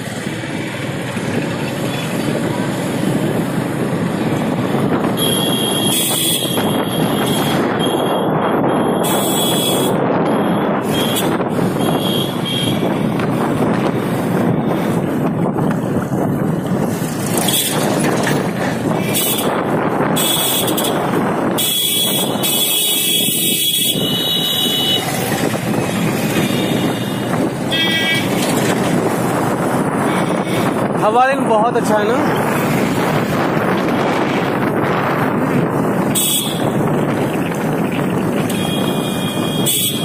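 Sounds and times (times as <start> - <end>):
motorcycle engine: 0.0 - 40.0
wind rushing: 2.3 - 39.7
vehicle horns tooting: 5.2 - 13.0, 17.4 - 18.0, 19.0 - 25.2, 26.2 - 28.4, 30.0 - 30.9, 36.0 - 36.9, 38.4 - 40.0.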